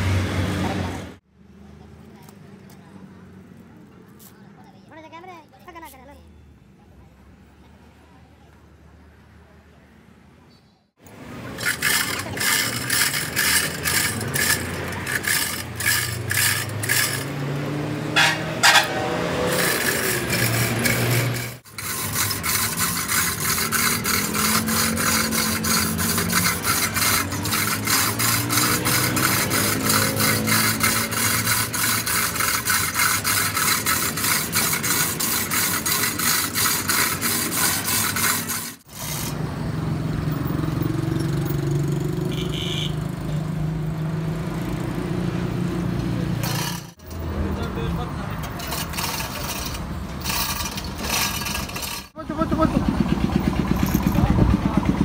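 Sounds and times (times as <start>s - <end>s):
chain clattering through hoist: 11.6s - 17.5s, 18.2s - 39.4s, 46.4s - 47.4s, 48.4s - 52.2s, 53.3s - 54.4s.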